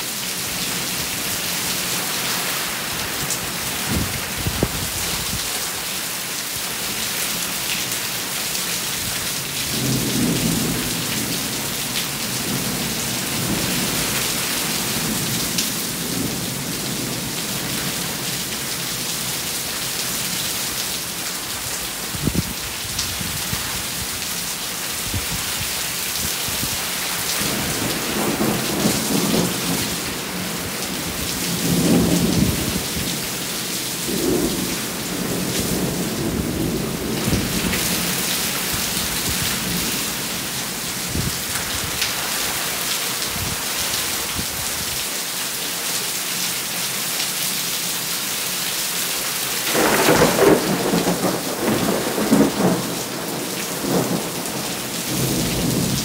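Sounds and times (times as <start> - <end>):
steady rain: 0.0 - 56.0
loud thunderclap: 49.7 - 54.5
thunder rumbling: 49.7 - 56.0.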